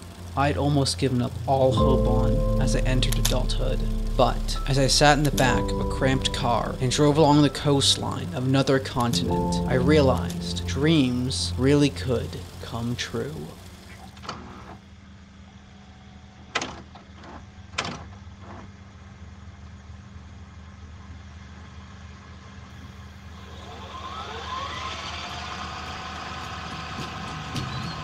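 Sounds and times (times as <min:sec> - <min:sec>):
car engine hum and road noise: 0:00.0 - 0:14.7, 0:24.8 - 0:28.0
rising tones: 0:01.5 - 0:13.7.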